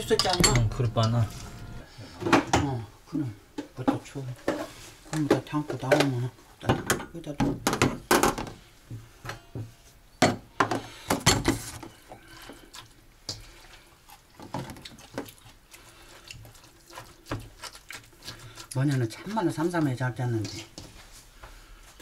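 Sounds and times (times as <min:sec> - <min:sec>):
bowls and utensils clattering: 0:00.0 - 0:02.8.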